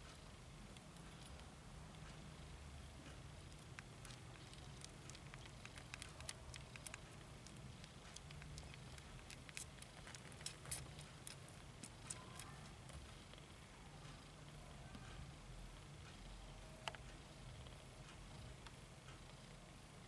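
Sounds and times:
low steady hum: 0.0s - 20.0s
kittens suckling clicks: 3.1s - 13.5s.

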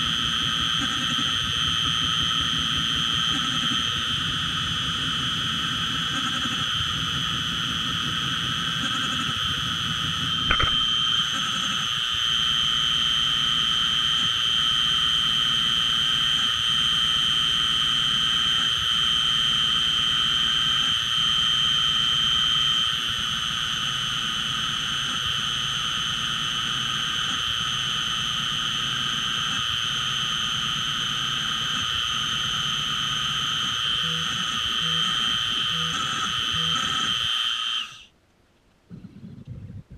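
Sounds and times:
milling machine spindle whine: 0.0s - 38.1s
sharp click: 10.5s - 10.9s
end mill cutting plastic: 10.5s - 11.0s.

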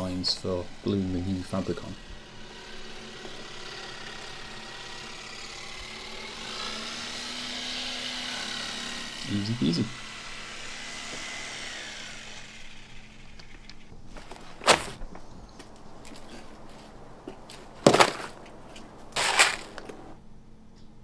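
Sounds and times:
power tool whine winding down: 0.0s - 13.9s
rustling clatter: 13.5s - 15.3s, 16.1s - 20.2s.

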